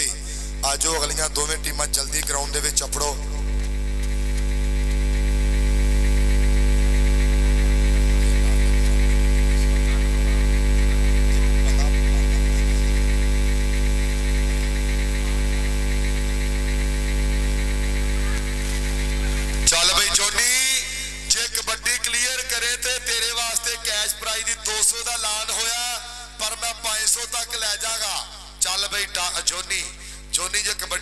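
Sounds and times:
voice: 0.0s - 3.5s, 8.2s - 8.8s, 9.5s - 12.8s, 19.3s - 31.0s
electrical mains hum: 0.0s - 31.0s.

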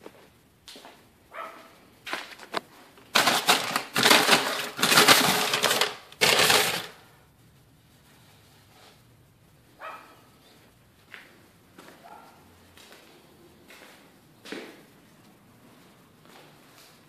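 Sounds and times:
paper bag crinkling: 2.1s - 7.0s.

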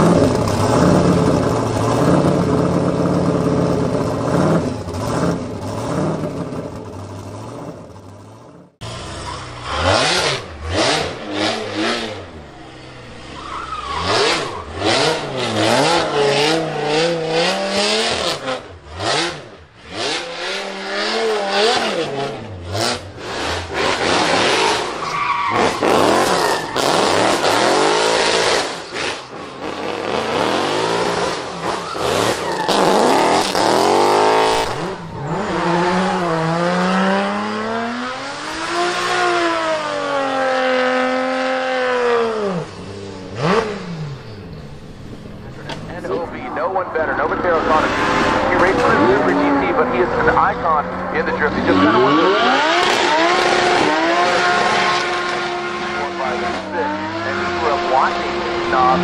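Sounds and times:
car engine revving hard: 8.8s - 44.3s, 45.7s - 59.0s
tyres squealing: 12.8s - 16.9s, 23.9s - 27.9s.

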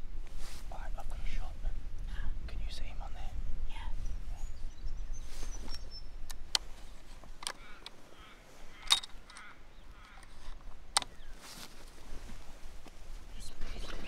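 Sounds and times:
sharp clicks: 6.2s - 8.0s, 8.8s - 11.2s.

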